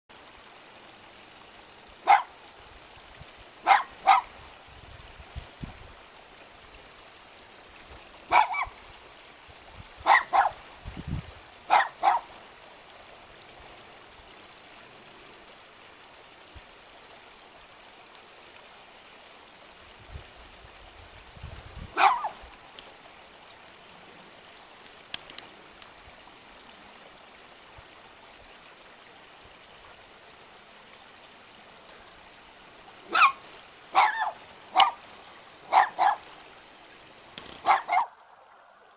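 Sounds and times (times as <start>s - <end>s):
steady hiss: 0.1s - 38.9s
dog barking: 2.0s - 2.4s, 3.6s - 4.3s, 8.3s - 8.8s, 10.0s - 10.6s, 11.7s - 12.3s, 22.0s - 22.4s, 33.1s - 35.0s, 35.7s - 36.3s, 37.6s - 38.2s.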